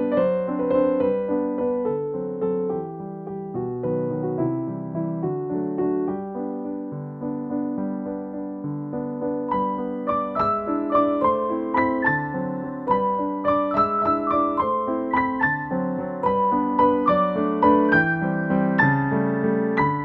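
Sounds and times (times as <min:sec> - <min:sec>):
piano-like keyboard music: 0:00.0 - 0:20.0.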